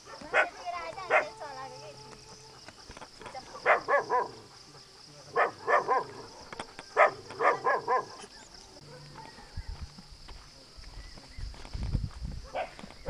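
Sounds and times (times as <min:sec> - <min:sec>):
dog barking: 0:00.0 - 0:01.5, 0:03.4 - 0:09.5, 0:12.4 - 0:12.8.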